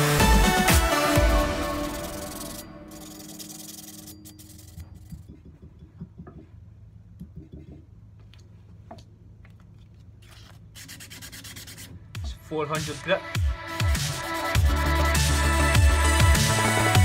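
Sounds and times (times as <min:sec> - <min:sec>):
background music: 0:00.0 - 0:04.1, 0:12.2 - 0:17.0
rag rubbing on axe head: 0:01.7 - 0:05.7.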